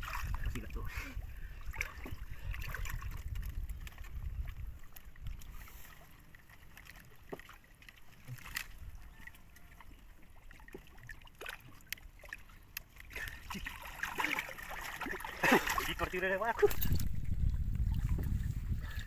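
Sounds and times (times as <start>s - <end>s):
shallow water sloshing and splashing: 0.0s - 19.0s
low rumble: 16.7s - 19.0s.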